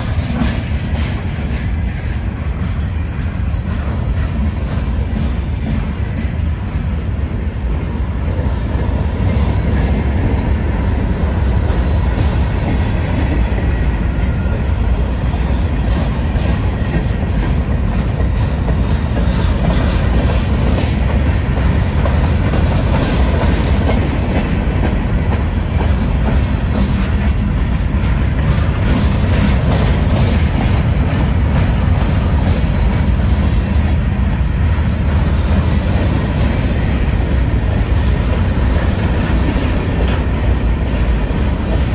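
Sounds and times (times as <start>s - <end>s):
freight train rumbling past: 0.0s - 41.9s
wheels clicking on rails: 0.0s - 41.9s.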